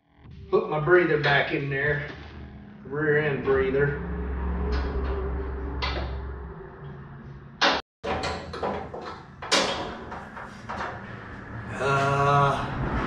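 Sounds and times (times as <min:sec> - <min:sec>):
low hum: 0:00.0 - 0:13.0
knocks and clanks on metal axle: 0:07.6 - 0:11.6.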